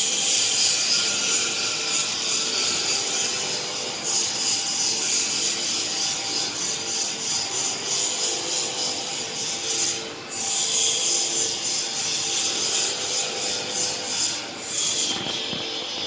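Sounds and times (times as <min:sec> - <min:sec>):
machine harsh rasping noise: 0:00.0 - 0:16.0.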